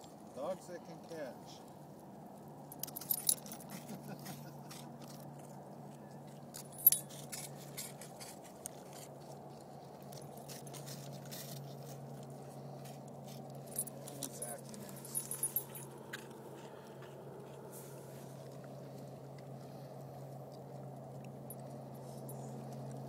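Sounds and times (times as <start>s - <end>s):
steady low hum: 0.0s - 23.0s
dog collar tags jingling: 2.8s - 3.9s, 6.5s - 7.6s, 13.6s - 16.1s.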